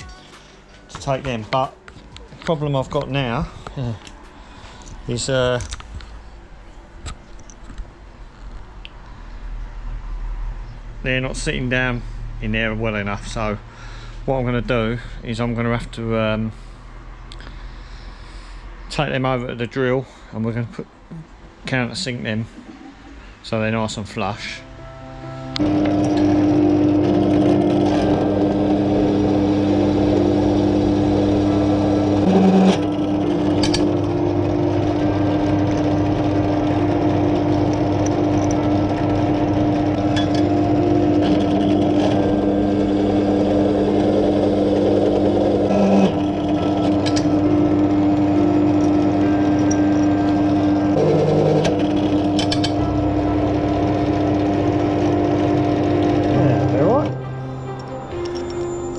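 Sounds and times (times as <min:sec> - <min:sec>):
pillar drill running: 0:25.6 - 0:57.3.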